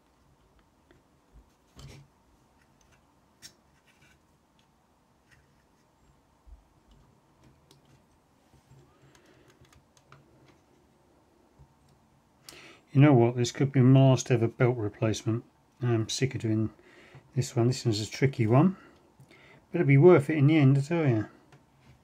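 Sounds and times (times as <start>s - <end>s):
faint clicks of cassette mechanism: 8.7s - 10.6s.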